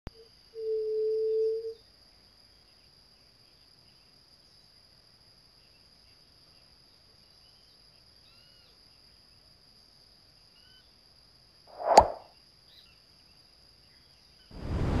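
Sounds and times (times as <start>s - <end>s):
faint bird chirps: 0.1s - 4.7s, 5.6s - 9.1s, 10.5s - 11.0s
high-pitched insect trill: 0.1s - 11.6s.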